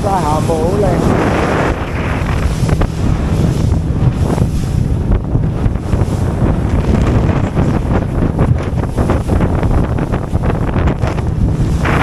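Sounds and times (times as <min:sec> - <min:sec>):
motorboat running at speed: 0:00.0 - 0:12.0
rush of boat wake: 0:00.0 - 0:12.0
wind buffeting microphone: 0:00.0 - 0:12.0.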